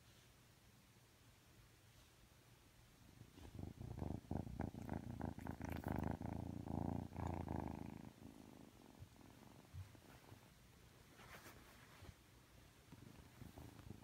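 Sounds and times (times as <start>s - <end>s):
kitten purring: 3.0s - 10.6s, 12.8s - 14.0s.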